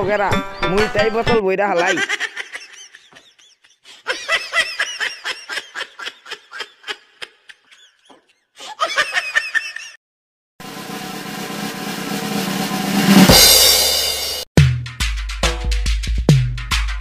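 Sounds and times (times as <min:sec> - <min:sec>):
high-pitched giggling laughter: 0:01.8 - 0:10.0.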